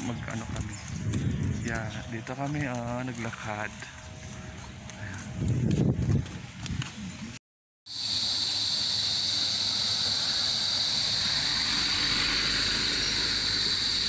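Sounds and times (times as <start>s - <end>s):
high-pitched insect drone: 7.9s - 14.0s.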